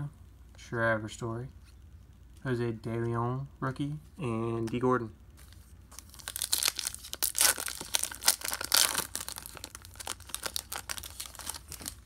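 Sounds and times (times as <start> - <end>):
foil wrapper crinkling: 5.4 - 12.0
foil wrapper ripping: 6.0 - 12.0.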